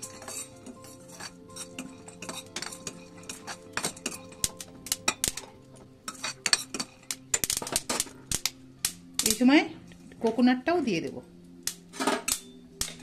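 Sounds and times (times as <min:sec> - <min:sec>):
metal spoon scraping a pan: 0:00.0 - 0:08.6, 0:11.9 - 0:13.0
peanuts crackling: 0:00.0 - 0:10.4
seeds clicking on hot pan: 0:00.0 - 0:10.4.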